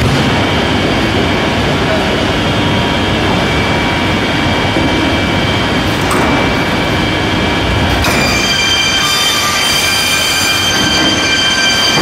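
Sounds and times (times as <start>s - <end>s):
machine rumble and clatter: 0.0s - 8.9s
constant high whine: 0.0s - 12.0s.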